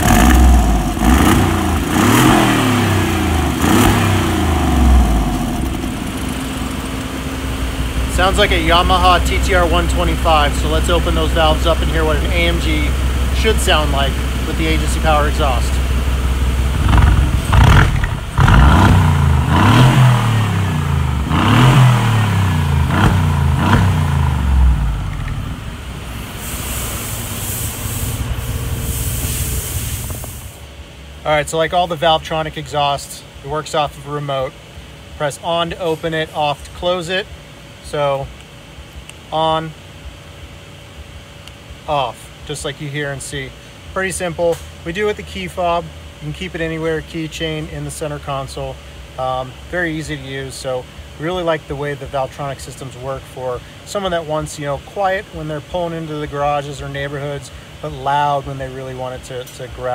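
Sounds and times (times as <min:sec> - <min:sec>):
car engine revving: 0:00.0 - 0:27.4.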